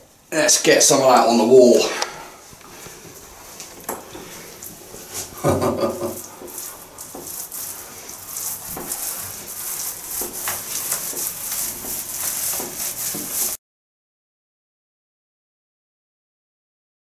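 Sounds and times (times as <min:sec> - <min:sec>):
paint roller crackling hiss: 0:00.5 - 0:13.6.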